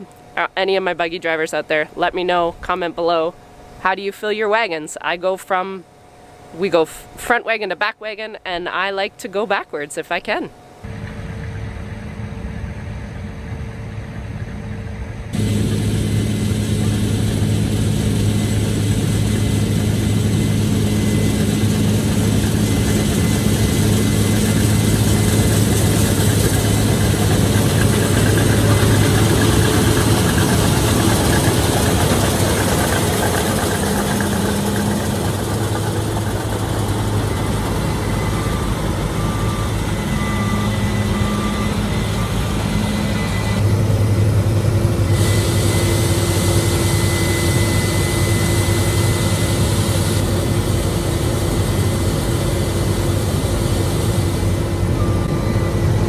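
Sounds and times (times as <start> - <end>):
combine harvester diesel engine drone: 0.0 - 56.0
threshing noise: 15.4 - 50.7.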